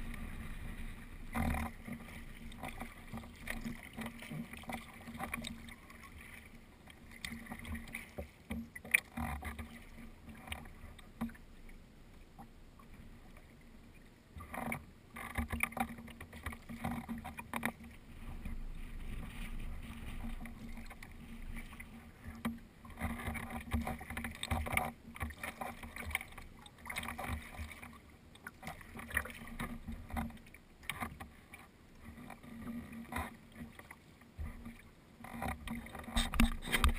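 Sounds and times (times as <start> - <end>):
water splashing against kayak hull: 0.0 - 36.9.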